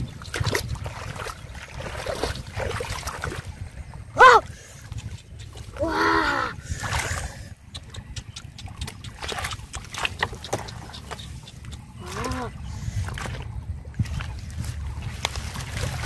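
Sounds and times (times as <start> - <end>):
splashing in muddy water: 0.0 - 16.0
wet slaps and squelches: 0.2 - 3.4, 6.9 - 12.5.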